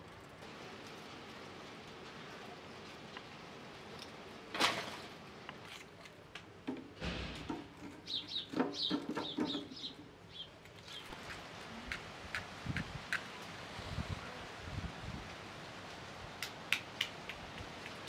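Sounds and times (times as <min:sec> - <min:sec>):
sharp knock: 0:07.0 - 0:07.6.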